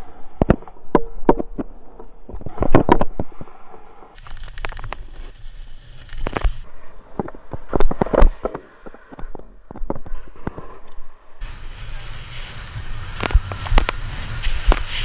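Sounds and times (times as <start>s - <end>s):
snowboard scraping over snow: 4.2s - 6.7s, 11.4s - 15.0s.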